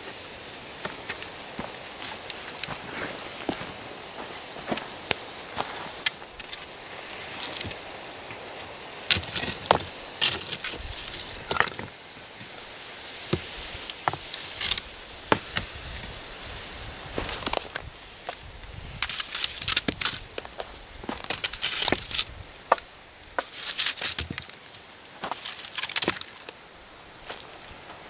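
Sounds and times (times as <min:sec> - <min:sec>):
hot coals hissing: 0:00.0 - 0:28.0
stick knocking stones: 0:09.0 - 0:12.0, 0:13.3 - 0:15.7, 0:19.0 - 0:26.6.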